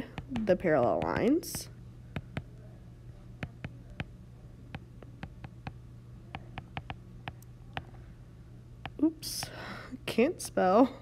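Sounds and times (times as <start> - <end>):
faint low hum: 0.0 - 11.0
stylus tapping on glass screen: 0.1 - 2.5, 4.7 - 5.8, 6.4 - 7.9.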